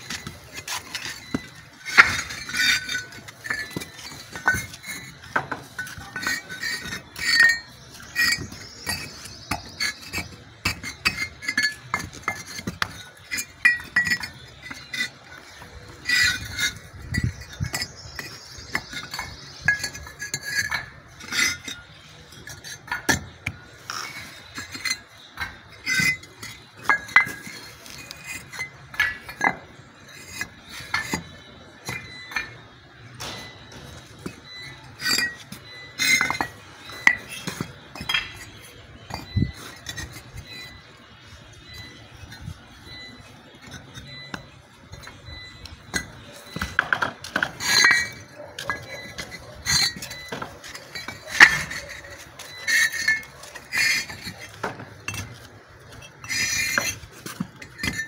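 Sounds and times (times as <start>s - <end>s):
bricks clinking together: 0.0s - 58.0s.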